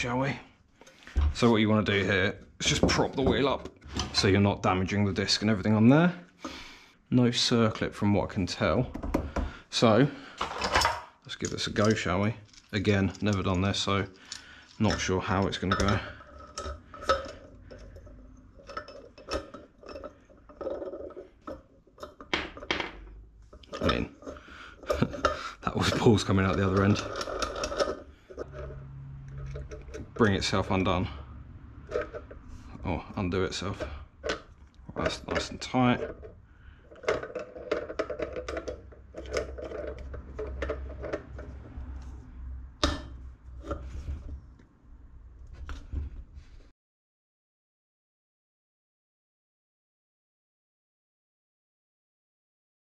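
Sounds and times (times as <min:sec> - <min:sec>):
metal clicks and scraping: 0:10.3 - 0:31.0, 0:31.8 - 0:32.8, 0:33.5 - 0:42.2.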